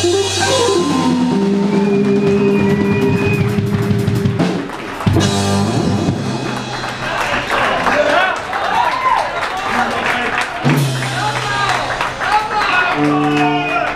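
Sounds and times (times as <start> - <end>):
electric guitar bending notes: 0.0 - 7.8
full-band hit: 0.0 - 8.0
live band playing: 0.0 - 8.8, 9.6 - 13.9.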